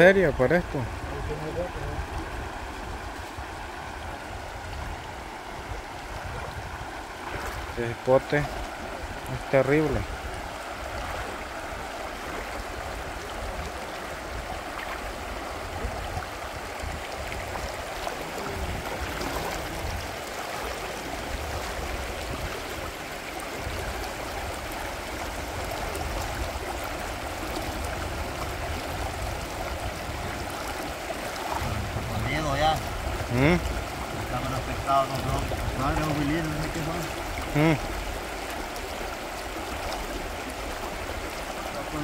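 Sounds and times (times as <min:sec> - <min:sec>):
river flowing over stones: 0:00.0 - 0:42.0
water splashing and sloshing: 0:00.0 - 0:42.0
low uneven rumble: 0:27.7 - 0:38.0.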